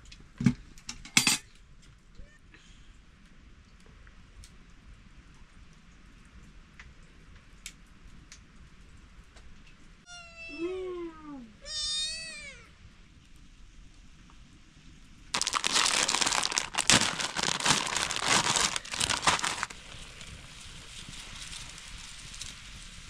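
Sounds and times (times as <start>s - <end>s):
cat meowing: 10.1s - 10.7s, 11.6s - 12.7s
loud crinkling rustling: 15.4s - 22.6s.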